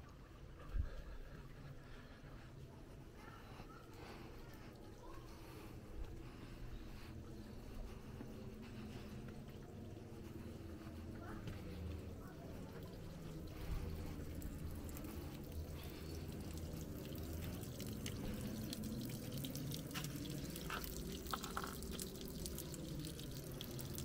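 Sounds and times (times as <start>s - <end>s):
sharp drips and splashes: 1.8s - 24.0s
water trickling from fountain spout: 3.4s - 24.0s.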